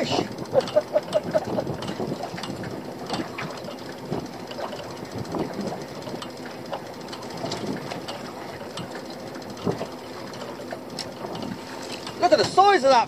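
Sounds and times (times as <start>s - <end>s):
scattered knocks: 0.5s - 6.4s.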